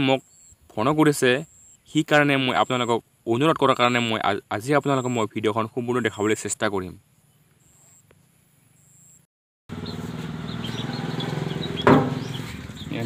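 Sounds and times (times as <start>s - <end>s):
birds chirping: 0.0s - 13.0s
sharp knock: 11.8s - 12.5s.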